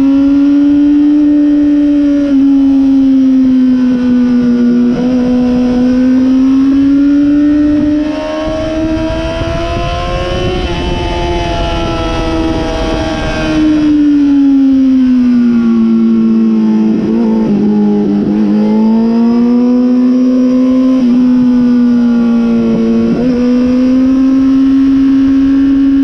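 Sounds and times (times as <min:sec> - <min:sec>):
motorcycle engine revving: 0:00.0 - 0:26.0
wind rush: 0:03.8 - 0:15.9.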